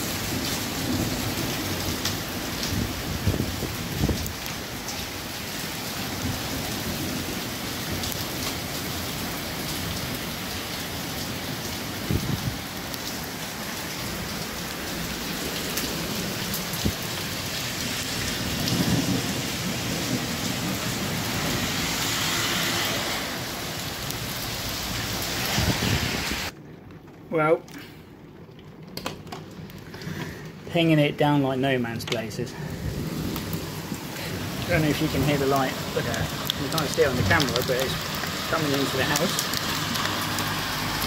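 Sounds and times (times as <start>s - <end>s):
thunder rumbling: 0.0s - 10.2s, 11.3s - 26.8s, 32.4s - 40.0s
heavy rain: 0.0s - 41.0s
hailstones knocking on paving: 34.3s - 41.0s.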